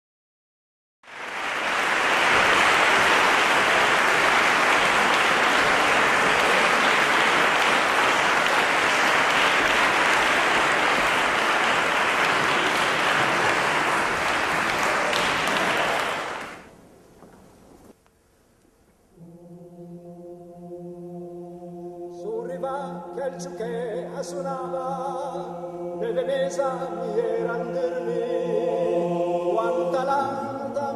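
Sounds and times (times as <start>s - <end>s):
audience applauding: 1.0s - 16.7s.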